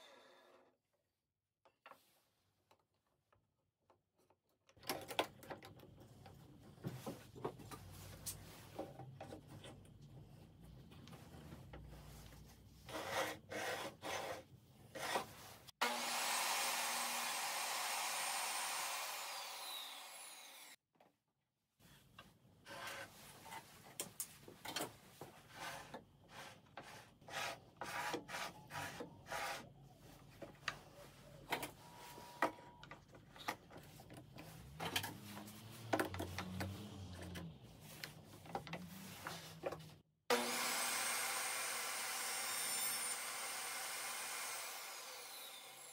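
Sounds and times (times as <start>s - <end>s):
table saw whine: 15.8s - 20.8s, 40.3s - 45.9s.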